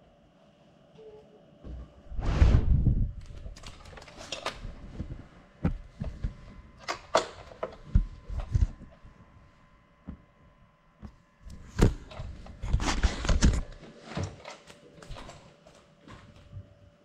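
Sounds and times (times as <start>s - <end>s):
loud rumbling thud: 2.1s - 3.2s.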